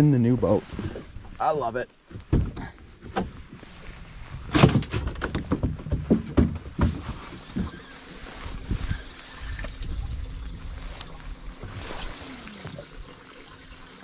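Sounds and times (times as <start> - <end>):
hatch knocking and banging shut: 2.1 - 3.4, 4.5 - 7.7.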